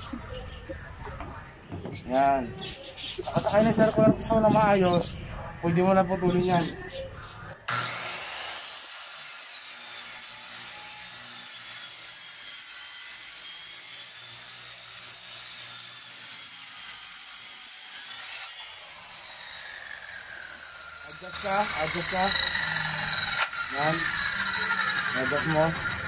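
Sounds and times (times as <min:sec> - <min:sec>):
circular saw cutting plywood: 0:07.7 - 0:26.0.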